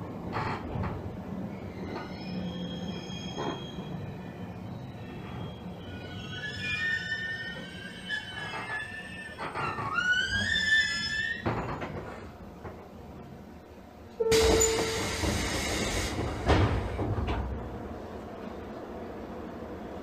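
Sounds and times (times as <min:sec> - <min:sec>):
stopped train humming: 0:12.6 - 0:20.0
train doors closing thud: 0:14.2 - 0:17.8
air hiss from door engines: 0:14.3 - 0:17.1.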